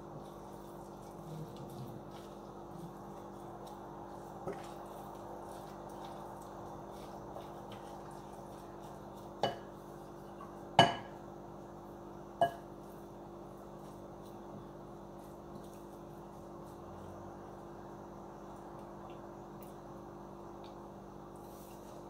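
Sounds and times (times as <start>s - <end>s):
wooden spoon stirring salad: 0.0s - 10.7s
low steady hum: 0.0s - 22.0s
spoon knocking against glass bowl: 12.4s - 12.6s.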